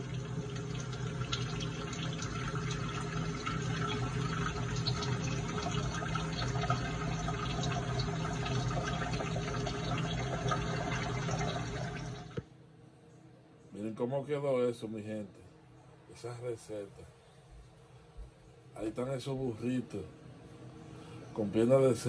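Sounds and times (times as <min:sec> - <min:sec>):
tap water running: 0:00.0 - 0:12.4.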